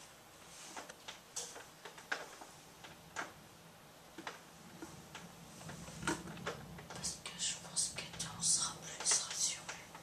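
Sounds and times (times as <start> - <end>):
faint low rumble: 2.5 - 10.0.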